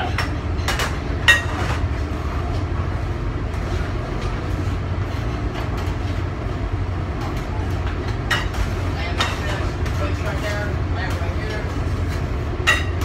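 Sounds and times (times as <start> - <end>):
dishes clinking: 0.0 - 1.9, 7.2 - 9.6, 12.6 - 13.0
low machinery rumble: 0.0 - 13.0.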